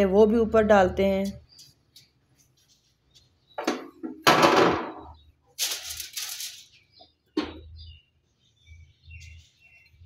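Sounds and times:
aluminium foil crinkling: 5.5s - 6.8s.

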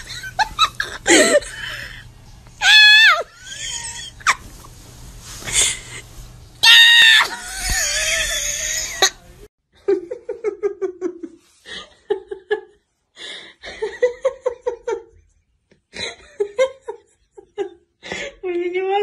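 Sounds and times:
person laughing: 0.0s - 2.0s, 2.6s - 4.6s, 7.2s - 12.8s.

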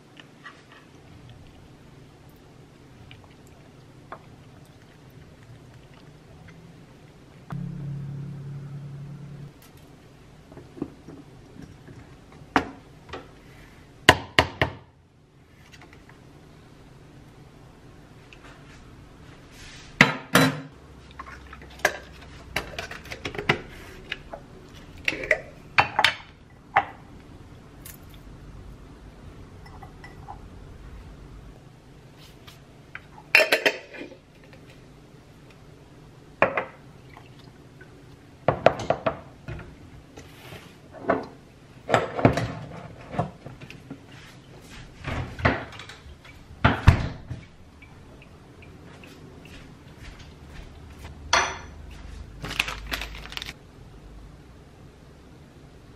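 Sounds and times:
kitchen clatter: 33.2s - 34.2s.

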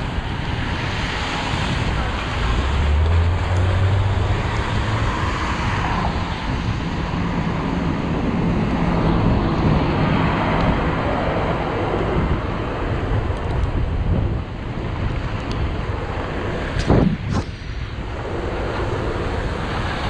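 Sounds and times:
tyres hissing on wet street: 0.0s - 12.0s
passing traffic: 0.0s - 20.0s
wind buffeting microphone: 0.0s - 20.0s.

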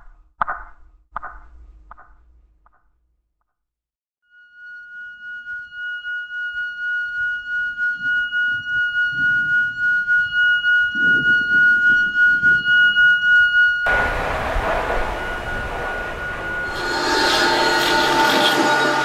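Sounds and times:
pulsing high ringing tone: 4.3s - 19.0s.

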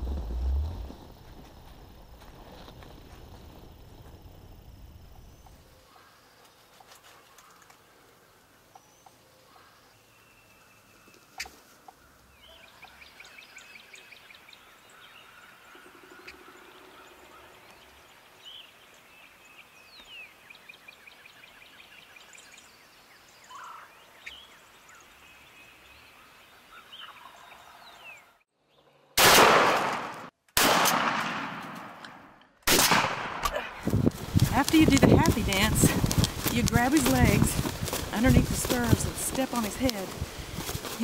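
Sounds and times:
songbirds chirping: 0.0s - 29.1s, 33.9s - 41.0s
shotgun blast: 29.2s - 33.6s.

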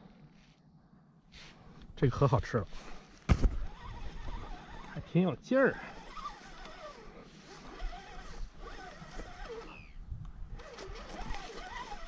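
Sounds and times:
fishing reel gears whirring: 3.6s - 12.0s.

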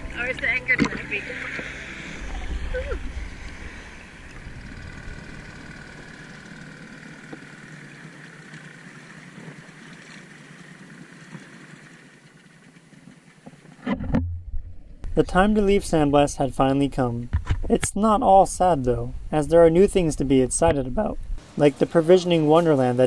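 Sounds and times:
small outboard motor running: 0.0s - 13.9s.

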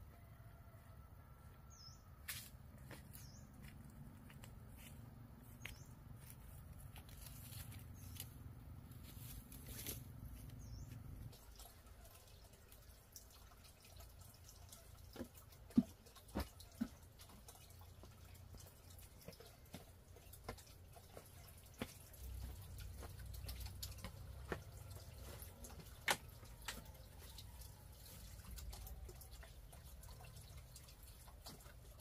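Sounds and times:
water dripping: 9.0s - 32.0s.

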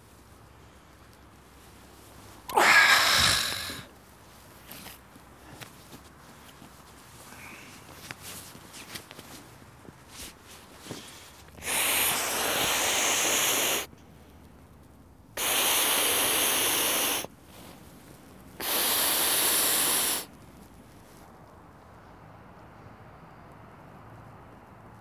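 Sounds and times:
soft rustling: 0.0s - 2.6s, 3.6s - 11.6s, 17.3s - 18.6s, 20.3s - 22.0s
breaths blown into a valve: 2.5s - 3.9s, 11.6s - 13.9s, 15.4s - 17.3s, 18.6s - 20.3s.

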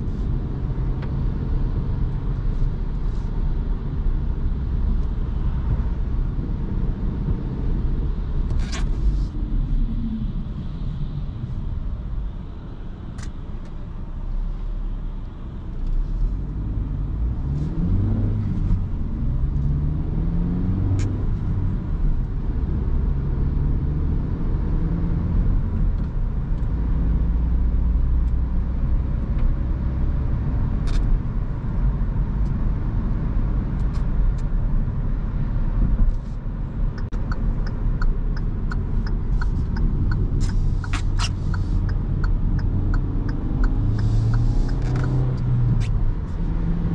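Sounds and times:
car engine: 0.0s - 46.9s
tyres on the road: 0.0s - 46.9s
turn signal ticking: 36.0s - 46.9s.

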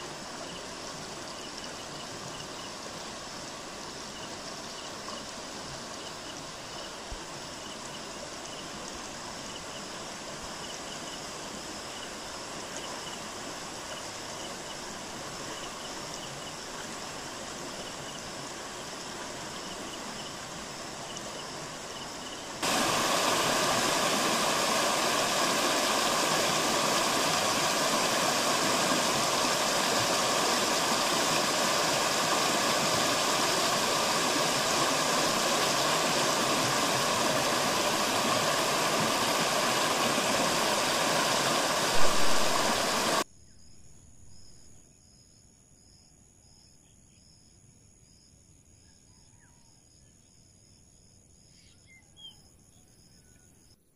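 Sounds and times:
loud steady rushing noise: 22.6s - 43.2s.

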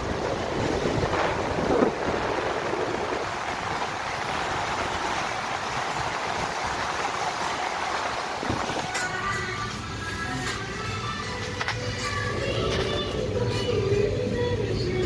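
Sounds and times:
wind on microphone: 0.0s - 9.0s
car tyre noise: 0.0s - 14.0s
river rushing: 0.0s - 14.8s.

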